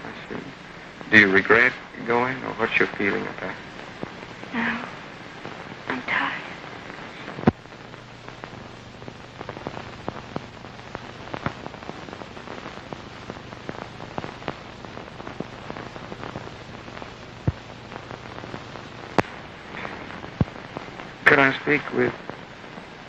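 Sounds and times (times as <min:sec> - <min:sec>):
film soundtrack hiss: 0:00.0 - 0:23.0
film clicks and pops: 0:06.9 - 0:21.2.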